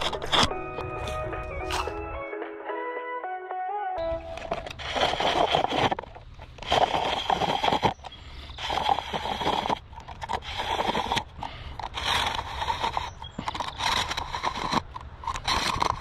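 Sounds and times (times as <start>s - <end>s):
blade slicing plastic bottle: 0.0s - 2.1s.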